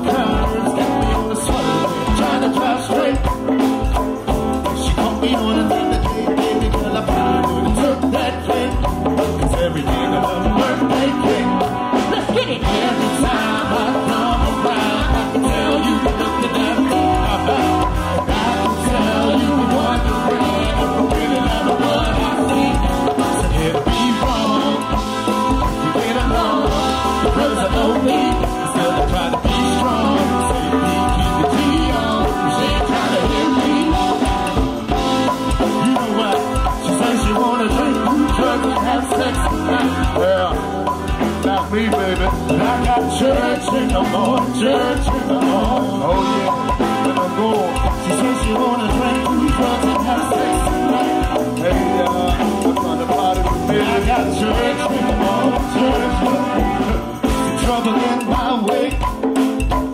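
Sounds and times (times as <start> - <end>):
drum kit steady beat: 0.0 - 59.9
live band playing: 0.0 - 59.9.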